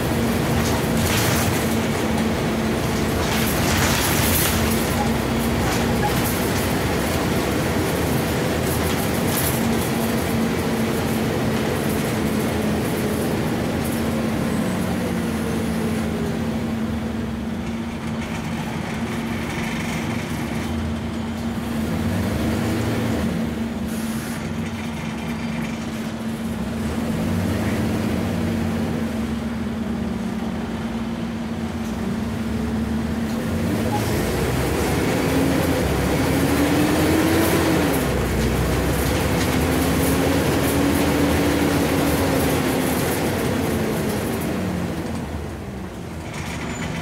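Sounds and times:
bus engine drone: 0:00.0 - 0:47.0.

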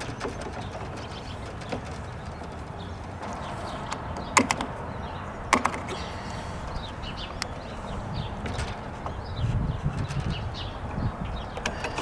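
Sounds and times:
sharp clicks: 0:03.9 - 0:04.8.

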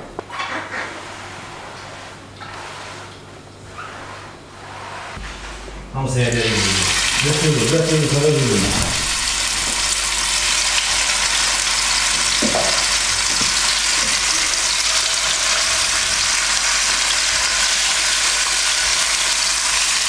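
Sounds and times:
meat sizzling in hot oil: 0:06.5 - 0:20.0.

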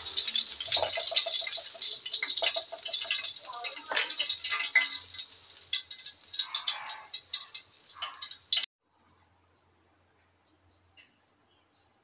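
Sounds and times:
hot oil crackling and popping: 0:00.0 - 0:08.7.

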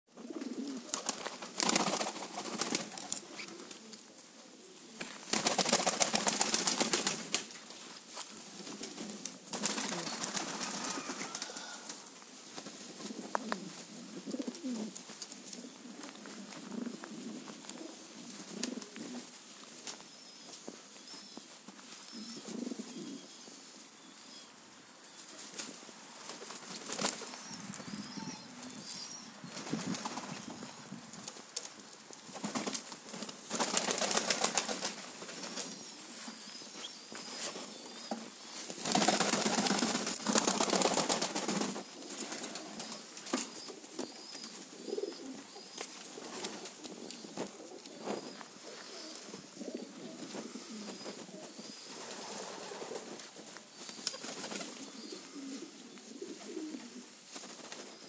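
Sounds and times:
pigeons cooing: 0:00.1 - 0:06.9, 0:09.0 - 0:12.1, 0:12.8 - 0:20.0, 0:22.0 - 0:23.8, 0:26.8 - 0:31.0, 0:38.9 - 0:53.4, 0:54.0 - 0:58.0
pigeon wings flapping: 0:00.3 - 0:03.5, 0:05.2 - 0:07.5, 0:08.7 - 0:11.7, 0:25.6 - 0:27.4, 0:29.5 - 0:31.7, 0:32.3 - 0:35.7, 0:38.7 - 0:43.5, 0:53.9 - 0:54.8.

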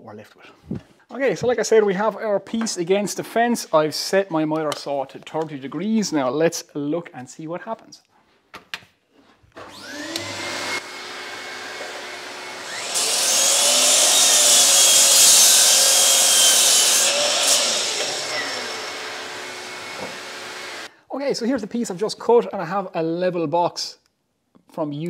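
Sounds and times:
saw blade cutting wood: 0:09.6 - 0:20.9
saw motor whining: 0:09.6 - 0:20.9.

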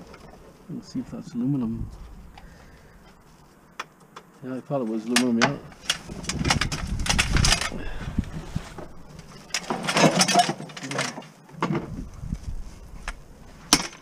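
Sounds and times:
bottles rustling and clattering: 0:05.1 - 0:14.0.

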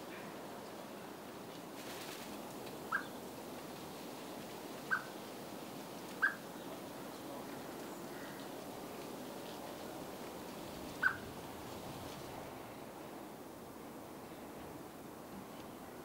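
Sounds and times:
steady background hiss: 0:00.0 - 0:16.0
bird call notes: 0:06.2 - 0:06.4, 0:11.0 - 0:11.2.

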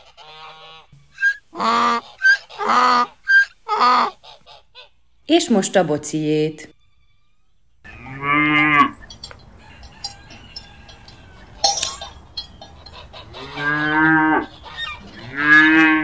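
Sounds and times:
faint farm background: 0:00.0 - 0:16.0
cow mooing: 0:07.9 - 0:09.1, 0:13.2 - 0:16.0.

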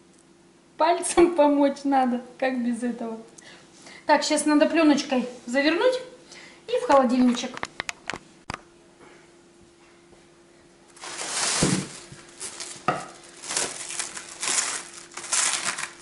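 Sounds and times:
cling film rustling and crinkling: 0:11.0 - 0:16.0.

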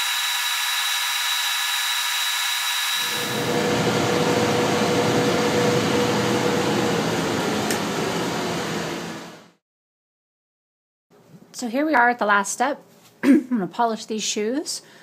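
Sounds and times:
finishing machine whirring grind: 0:00.0 - 0:09.4.

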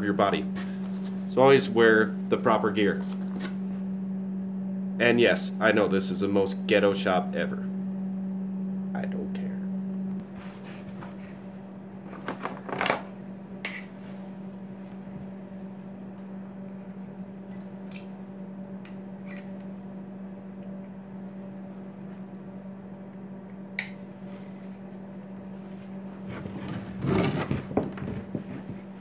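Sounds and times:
low electrical hum: 0:00.0 - 0:29.0
welding rod scraping on wood: 0:26.1 - 0:29.0.

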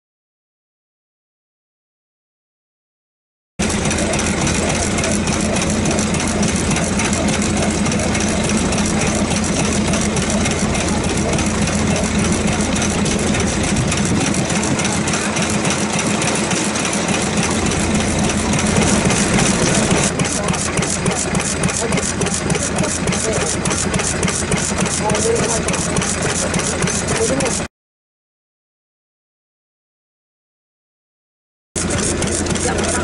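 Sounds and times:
stationary engine running: 0:03.6 - 0:27.7, 0:31.8 - 0:33.0.

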